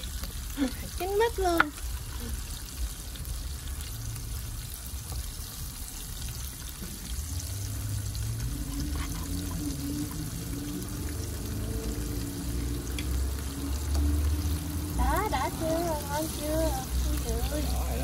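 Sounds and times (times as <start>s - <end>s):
prawns sizzling in hot oil: 0.0s - 18.0s.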